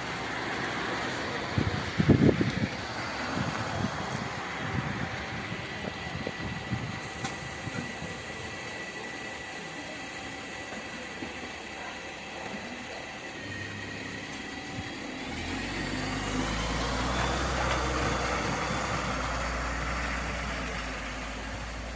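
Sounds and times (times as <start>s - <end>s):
bus engine: 0.0s - 21.9s
rising whine: 12.5s - 21.9s.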